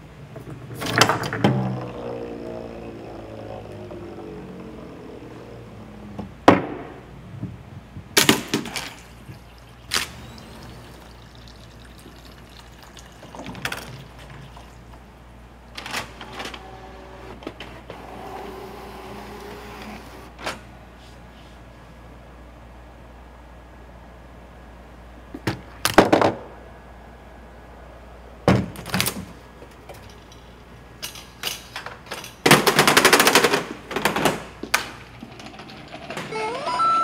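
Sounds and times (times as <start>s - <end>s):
steady low hum: 0.0s - 25.4s.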